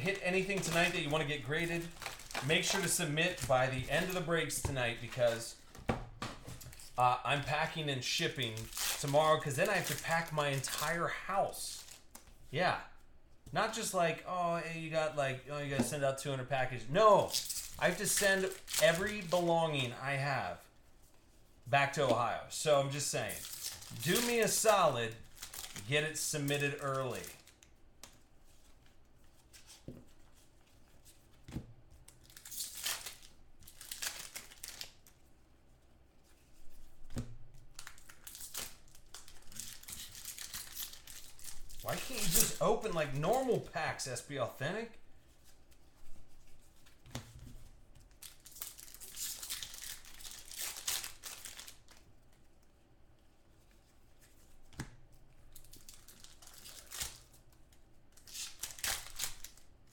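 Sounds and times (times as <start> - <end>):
card pack wrappers crinkling and tearing: 0.0 - 5.7, 6.6 - 12.2, 17.1 - 20.0, 22.9 - 27.7, 32.1 - 35.2, 37.7 - 44.3, 48.1 - 52.1, 55.5 - 59.9.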